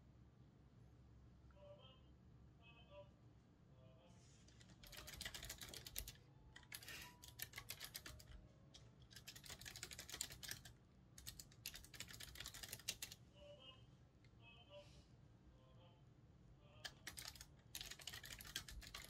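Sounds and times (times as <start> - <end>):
keyboard typing clicks: 4.6 - 13.2, 16.8 - 19.0.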